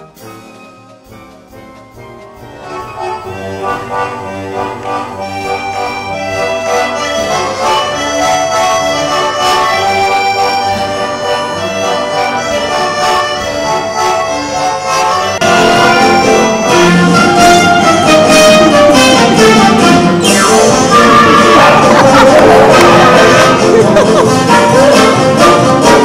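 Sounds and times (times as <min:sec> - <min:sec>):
accordion playing a tune: 0:00.0 - 0:26.0.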